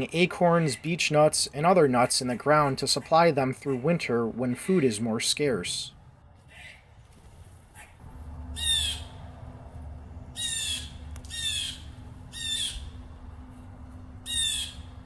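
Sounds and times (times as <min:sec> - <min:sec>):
blue jay harsh calls: 0:08.5 - 0:09.4, 0:10.3 - 0:13.1, 0:14.2 - 0:15.0.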